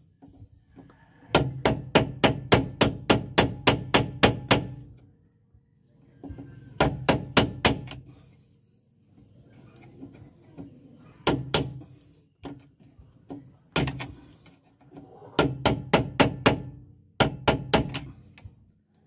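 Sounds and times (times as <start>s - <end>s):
tool knocking on rusted bolt: 15.4s - 18.1s.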